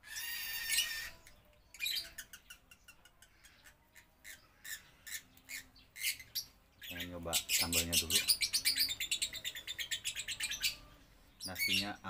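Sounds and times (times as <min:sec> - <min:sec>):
bird squawking harshly: 0:00.0 - 0:01.2.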